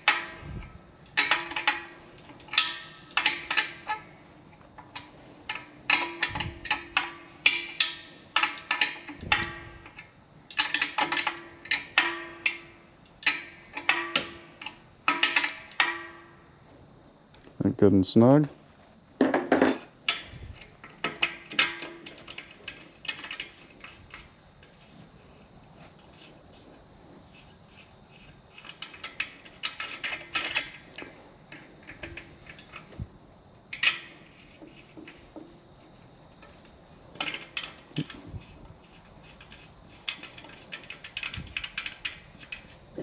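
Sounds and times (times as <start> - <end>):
light metallic clicks and clinks: 0.0 - 16.3, 33.7 - 43.0.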